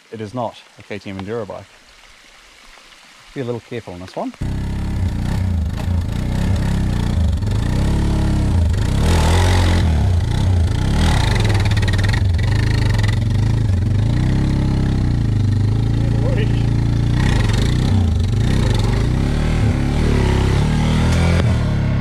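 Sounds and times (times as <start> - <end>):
motorcycle throttle bursts: 4.4 - 21.8.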